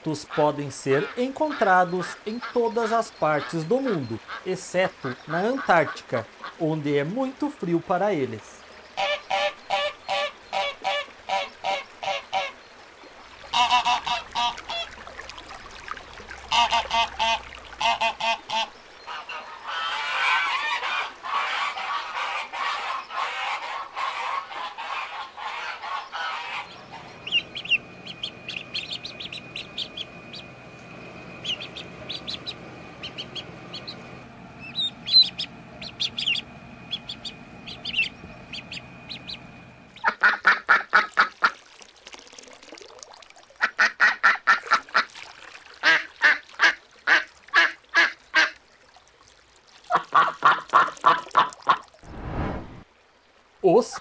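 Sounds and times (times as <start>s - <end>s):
geese honking and ducks quacking: 0.2s - 6.6s, 9.0s - 12.6s, 13.5s - 14.9s, 16.4s - 41.5s
steady hum: 25.8s - 40.2s.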